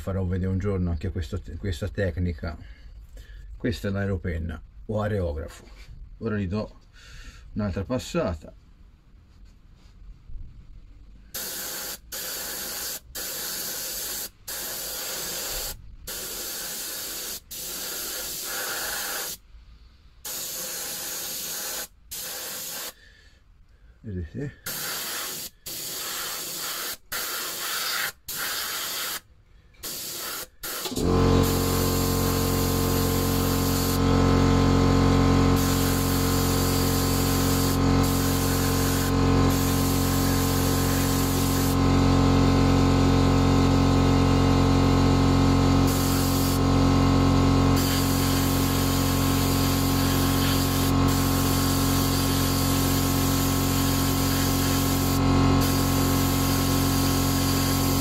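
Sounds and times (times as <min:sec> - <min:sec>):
airbrush spray hissing: 0:11.3 - 0:19.4, 0:20.2 - 0:23.0, 0:24.6 - 0:34.1, 0:35.6 - 0:41.8, 0:45.8 - 0:46.6, 0:47.8 - 0:58.0
compressor motor hum: 0:29.8 - 0:58.0.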